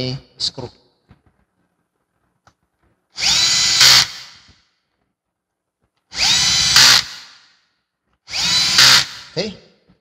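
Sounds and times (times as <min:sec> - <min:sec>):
cordless drill driving screws: 0:03.2 - 0:04.5, 0:06.1 - 0:07.4, 0:08.2 - 0:09.4.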